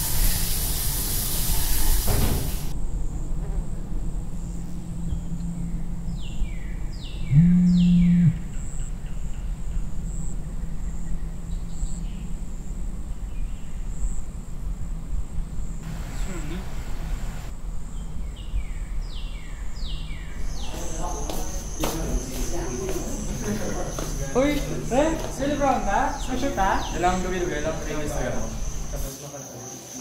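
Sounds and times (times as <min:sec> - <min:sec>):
shower water running: 0:00.0 - 0:02.7, 0:15.8 - 0:17.5
steady low hum: 0:02.7 - 0:29.1
mobile phone vibrating buzz: 0:07.3 - 0:08.5.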